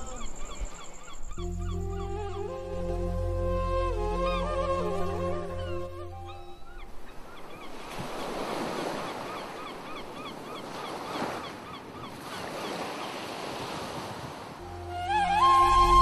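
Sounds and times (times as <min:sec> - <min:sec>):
bird chirping: 0:00.0 - 0:02.6
surf washing in: 0:07.0 - 0:16.0.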